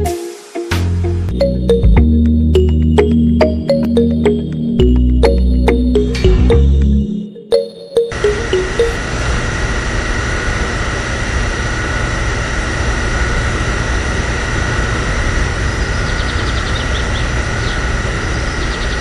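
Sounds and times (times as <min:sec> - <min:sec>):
small water pump motor whine: 0:08.1 - 0:19.0.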